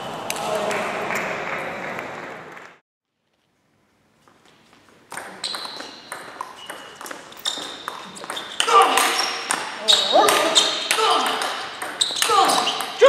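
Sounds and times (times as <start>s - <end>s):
crowd noise: 0.0s - 2.8s.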